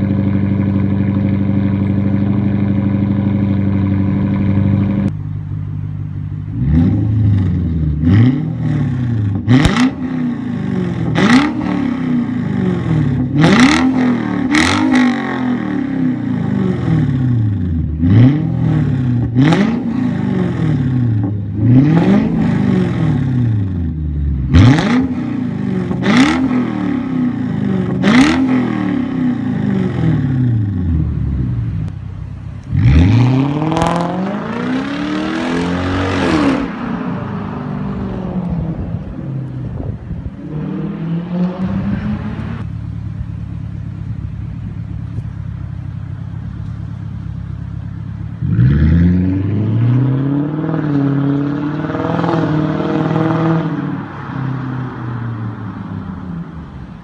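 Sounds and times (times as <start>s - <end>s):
car engine revving: 6.4s - 45.2s, 47.7s - 57.0s
car accelerating hard: 32.7s - 42.7s, 48.4s - 55.8s.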